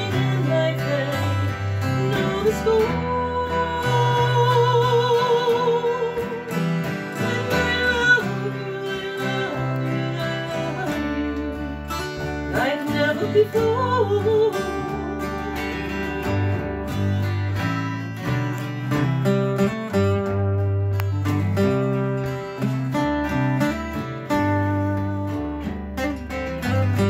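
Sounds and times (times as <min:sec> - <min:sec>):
woman singing: 0:00.0 - 0:17.3
acoustic guitars strummed: 0:00.0 - 0:27.0.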